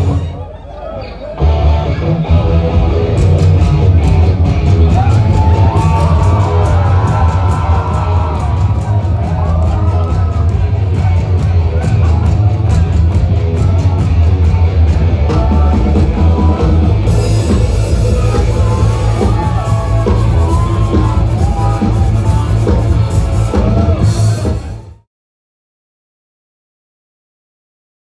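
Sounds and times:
live rock band playing: 0.0s - 0.4s, 1.0s - 25.0s
person singing: 5.0s - 25.0s.

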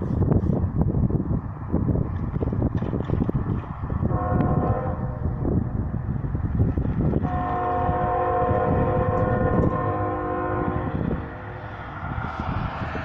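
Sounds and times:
locomotive air horn chord: 4.1s - 5.2s, 7.2s - 11.5s.

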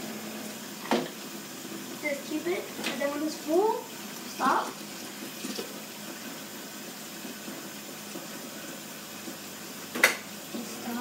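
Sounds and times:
water running into cup: 0.0s - 11.0s.

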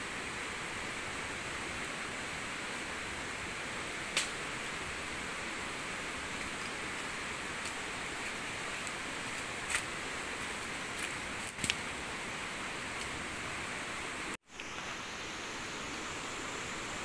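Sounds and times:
heavy rain hissing: 0.0s - 17.0s.

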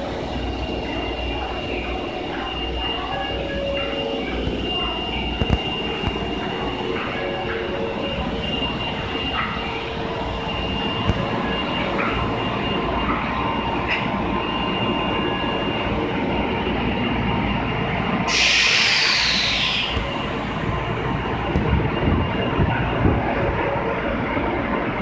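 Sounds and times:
electric train running: 0.0s - 25.0s
air hissing: 18.3s - 20.0s.

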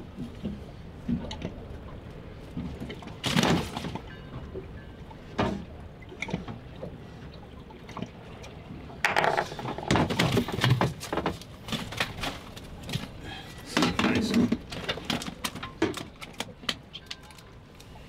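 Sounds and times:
water slapping boat hull: 0.0s - 17.2s.

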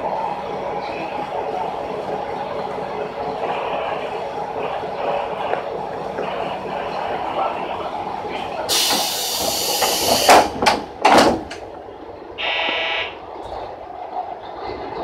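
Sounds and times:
diesel railcar humming: 0.0s - 15.0s
hiss of air: 8.7s - 10.5s
door sliding shut with knocks: 8.9s - 11.6s.

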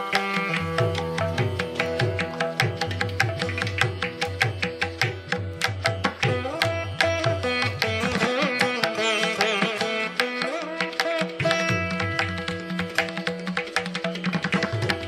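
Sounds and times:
hand drum strokes: 0.0s - 8.2s
plucked string instrument melody: 0.0s - 15.0s.

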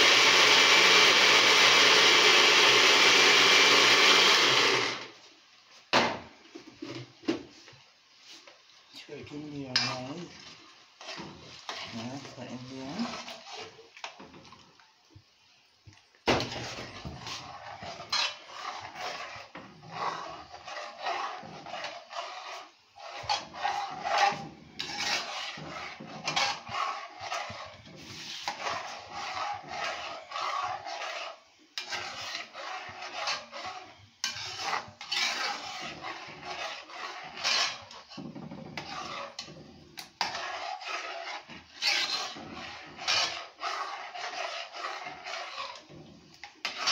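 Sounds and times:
metal spoon scraping a pot: 8.9s - 14.7s, 16.4s - 46.9s.

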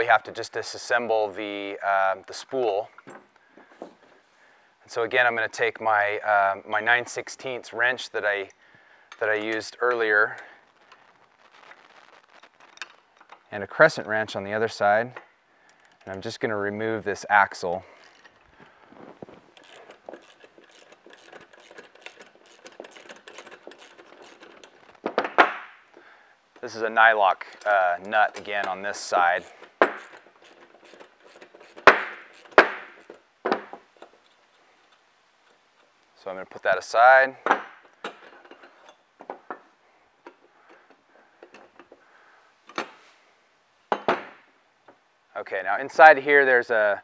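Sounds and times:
metal hardware clicks and knocks: 3.0s - 4.1s, 19.5s - 25.7s, 37.4s - 42.0s, 43.9s - 45.0s
wrenches clicking on metal nut: 17.6s - 18.5s, 19.5s - 25.6s, 27.5s - 35.9s.

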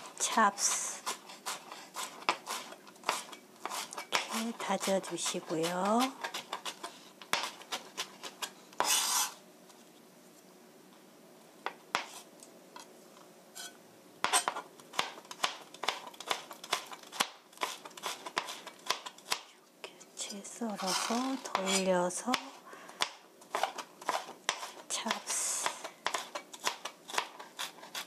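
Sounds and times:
knife rasp: 0.0s - 9.4s, 13.6s - 19.4s, 20.7s - 22.5s, 23.5s - 24.9s, 25.6s - 28.0s
knife chopping on cutting board: 1.0s - 9.3s, 13.6s - 19.4s, 20.8s - 25.2s, 26.0s - 28.0s.

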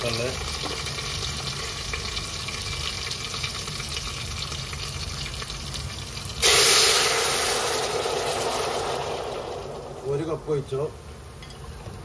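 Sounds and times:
onions sizzling in ghee: 0.0s - 10.9s
hot ghee hissing loudly: 6.3s - 10.9s
water poured into pot: 6.4s - 10.2s.

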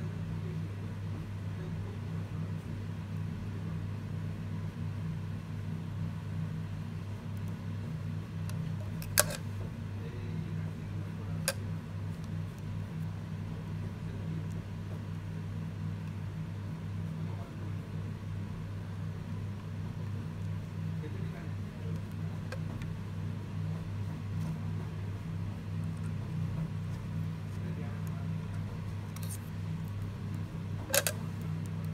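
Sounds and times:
steady low hum: 0.0s - 31.9s.

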